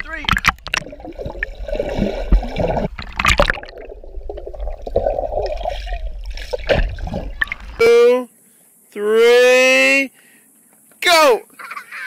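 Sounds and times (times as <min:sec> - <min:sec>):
muffled underwater swirl: 0:00.0 - 0:07.9.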